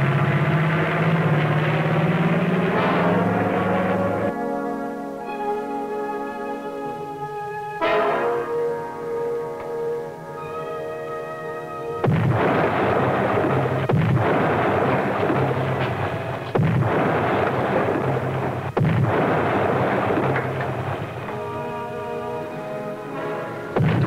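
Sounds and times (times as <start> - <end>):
dramatic orchestral music: 0.0 - 24.0
heavy explosions with rumble: 12.0 - 22.0, 23.7 - 24.0.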